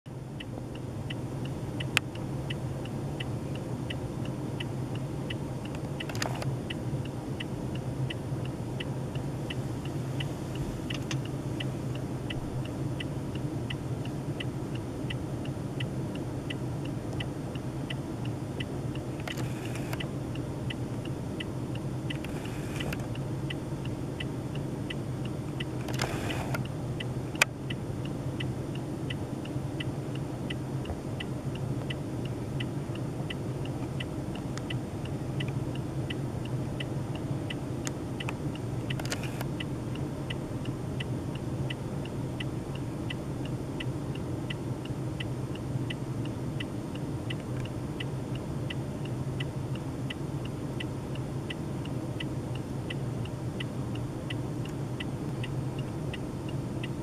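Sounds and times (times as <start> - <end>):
light even ticking: 0.1 - 57.0
steady low hum: 0.1 - 57.0
sharp clicks: 5.6 - 6.6, 10.9 - 11.3, 19.0 - 20.1, 25.6 - 27.6, 37.8 - 39.6.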